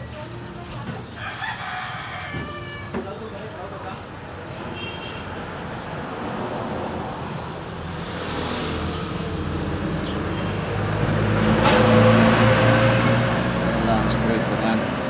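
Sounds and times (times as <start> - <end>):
vehicle approaching on road: 5.4 - 15.0.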